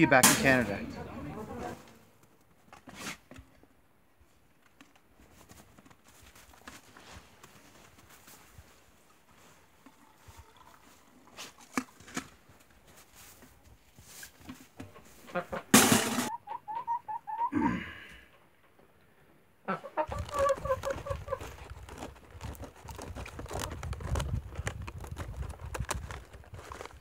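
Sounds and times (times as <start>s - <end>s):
hen clucking: 15.2s - 17.6s, 19.6s - 21.5s.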